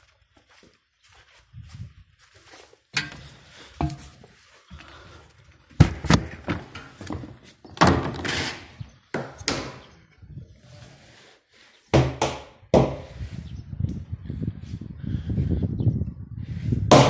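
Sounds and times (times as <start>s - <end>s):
hollow plastic thuds: 5.7s - 8.2s
plastic scraping: 5.8s - 9.8s.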